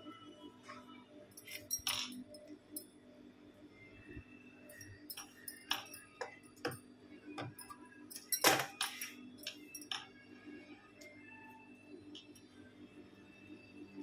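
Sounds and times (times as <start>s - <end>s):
bangles clinking: 1.4s - 2.9s, 4.7s - 6.8s, 7.4s - 10.1s.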